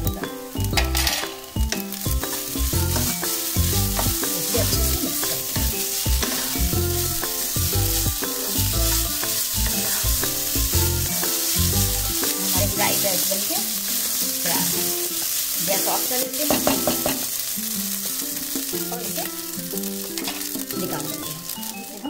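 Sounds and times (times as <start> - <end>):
instrumental background music: 0.0 - 22.0
rice sizzling in a pan: 0.0 - 22.0
spatula scraping a pan: 2.3 - 18.6.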